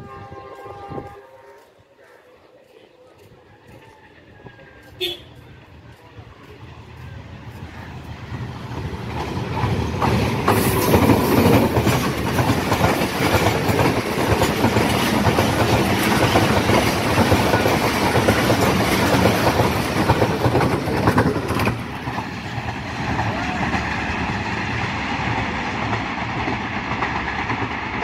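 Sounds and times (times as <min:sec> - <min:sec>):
diesel locomotive passing: 0:00.0 - 0:28.0
train wheels clickety-clack: 0:03.2 - 0:28.0.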